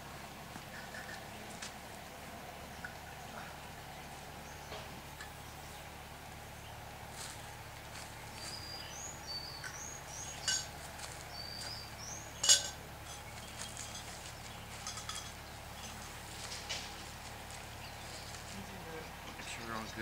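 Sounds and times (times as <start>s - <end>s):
metal frame pieces clinking: 10.3s - 10.9s, 12.4s - 16.9s
light ticks of handled parts: 12.4s - 17.7s.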